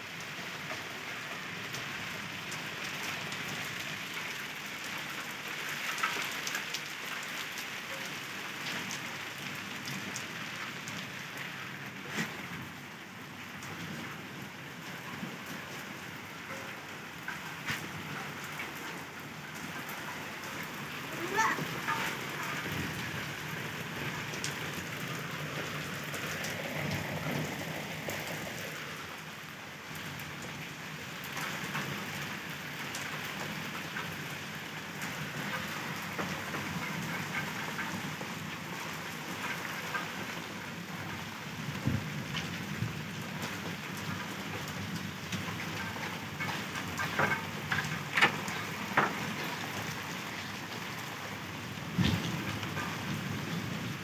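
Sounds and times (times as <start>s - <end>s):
rain falling on mud: 0.0s - 54.0s.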